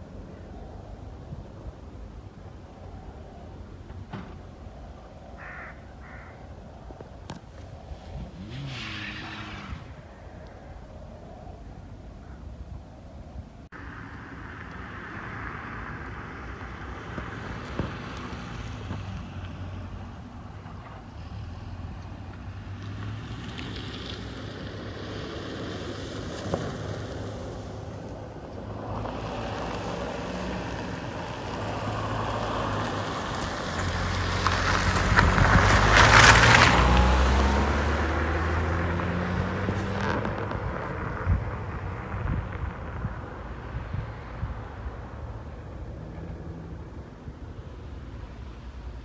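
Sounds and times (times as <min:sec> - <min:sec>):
car engine passing by: 0:07.8 - 0:11.6, 0:13.8 - 0:49.0.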